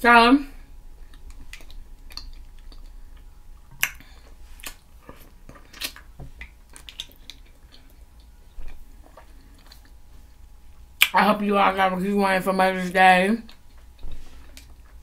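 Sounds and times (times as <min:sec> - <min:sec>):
person chewing food: 0:00.7 - 0:11.1, 0:13.5 - 0:15.0
wet mouth clicks and smacks: 0:01.0 - 0:10.0.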